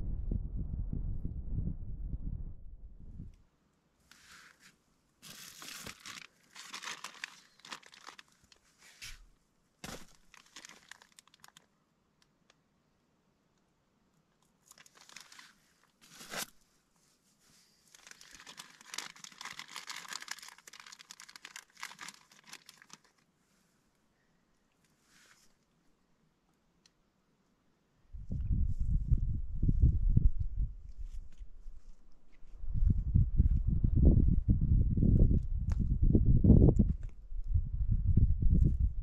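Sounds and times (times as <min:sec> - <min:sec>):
tent fabric rustling: 0:04.1 - 0:11.6, 0:14.7 - 0:23.1.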